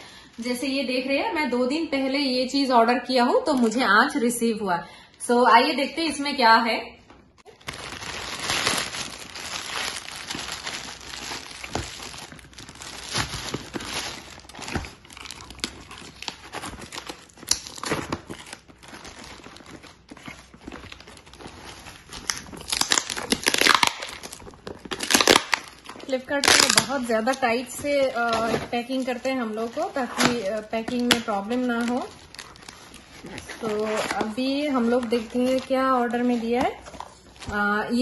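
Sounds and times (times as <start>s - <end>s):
packing tape tearing: 7.5s - 27.4s
plastic bag crinkling: 7.5s - 38.0s.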